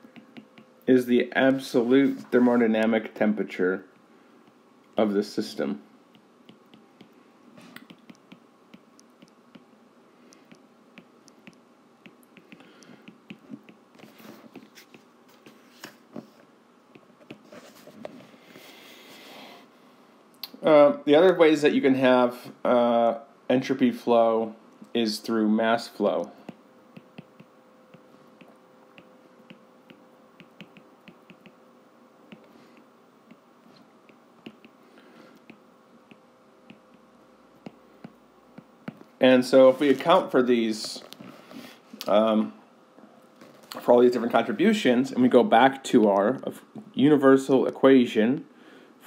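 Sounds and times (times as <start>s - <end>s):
faint steady hum: 0.0s - 49.0s
stylus tapping on glass screen: 0.1s - 0.7s, 29.5s - 31.6s
stylus scratching on screen: 12.4s - 16.0s.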